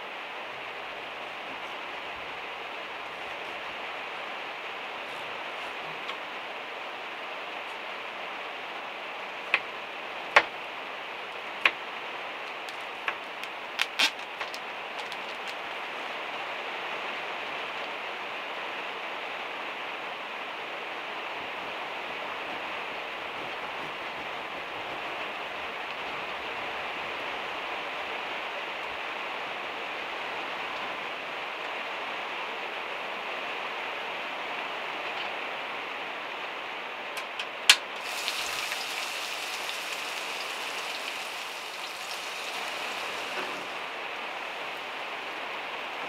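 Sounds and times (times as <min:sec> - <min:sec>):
rain on metal roof: 0:00.0 - 0:18.8, 0:37.3 - 0:46.0.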